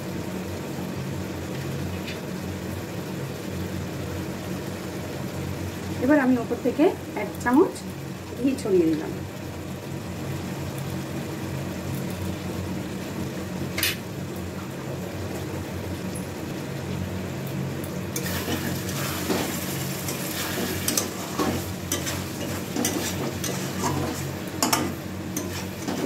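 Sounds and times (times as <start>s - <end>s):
food sizzling in a pan: 0.0s - 26.0s
metal spatula scraping pan: 18.2s - 26.0s.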